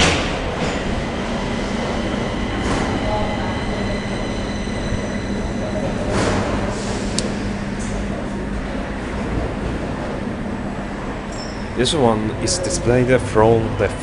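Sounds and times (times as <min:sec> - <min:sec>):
low hum: 0:00.0 - 0:13.8
mechanical rumble: 0:00.0 - 0:14.0
faint high whine: 0:00.6 - 0:08.4.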